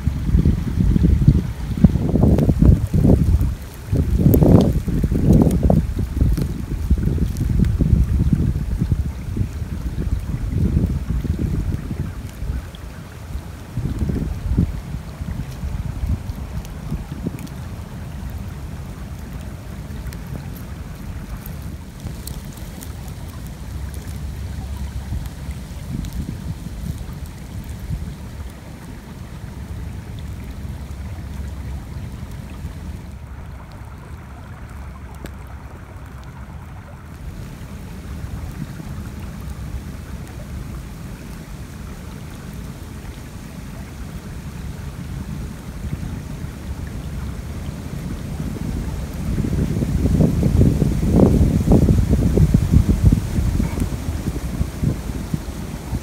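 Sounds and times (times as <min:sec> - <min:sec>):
stream rushing: 0:00.0 - 0:56.0
water trickling: 0:00.0 - 0:56.0
wind buffeting microphone: 0:00.0 - 0:56.0
small ticks: 0:02.2 - 0:07.8, 0:19.0 - 0:28.5.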